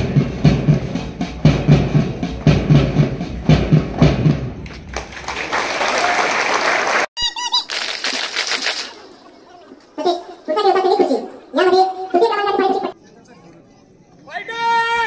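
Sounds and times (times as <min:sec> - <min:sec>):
march music with drumbeat: 0:00.0 - 0:04.8
crowd applauding: 0:04.6 - 0:07.1, 0:07.7 - 0:09.2.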